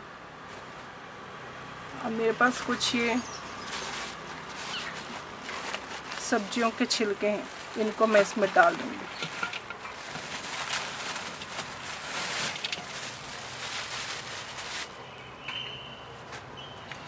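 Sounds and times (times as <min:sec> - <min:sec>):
vegetable peels rustling and crinkling: 0:02.2 - 0:15.0.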